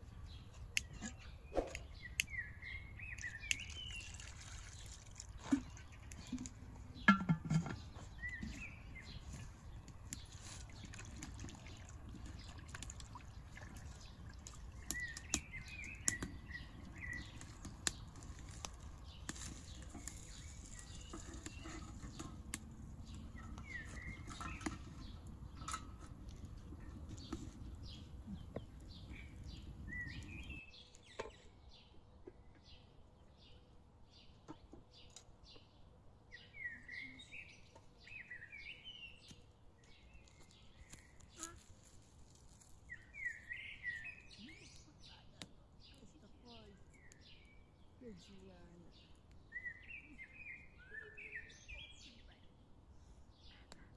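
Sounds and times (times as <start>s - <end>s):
low outdoor rumble: 0.0s - 30.6s
small birds chirping: 0.0s - 53.9s.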